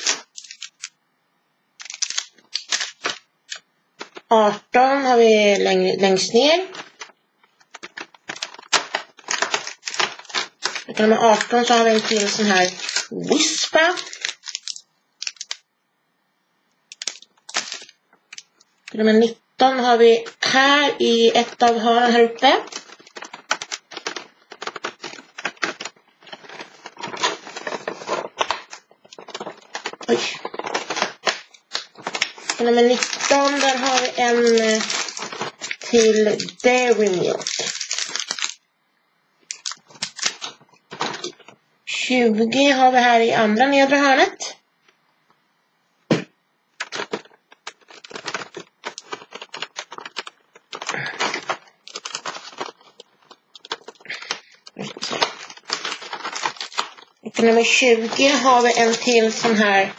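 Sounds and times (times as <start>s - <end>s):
cardboard clicks and rustles: 0.0s - 1.0s, 1.8s - 4.3s, 6.7s - 15.6s, 16.9s - 18.5s, 22.5s - 38.6s, 39.5s - 41.6s, 46.8s - 59.9s.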